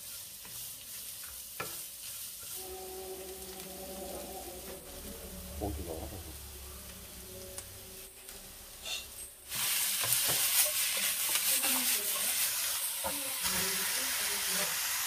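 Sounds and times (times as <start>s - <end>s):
food sizzling in oiled pan: 0.0s - 4.7s, 8.2s - 15.0s.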